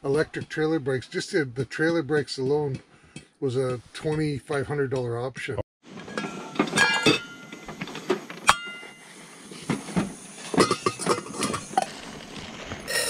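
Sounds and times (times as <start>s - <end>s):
metal cookware clinking: 6.0s - 7.9s, 8.5s - 9.2s.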